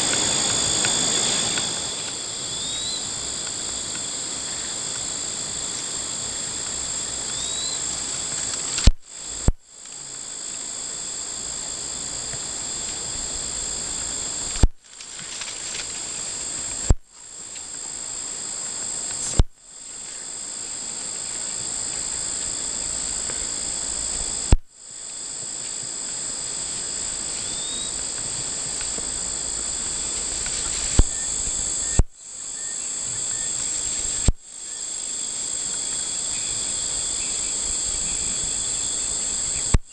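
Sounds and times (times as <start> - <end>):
insects chirping shrilly: 0.0 - 39.9.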